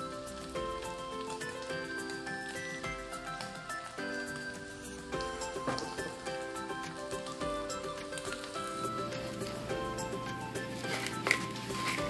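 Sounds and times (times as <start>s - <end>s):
background music sustained notes: 0.0s - 12.0s.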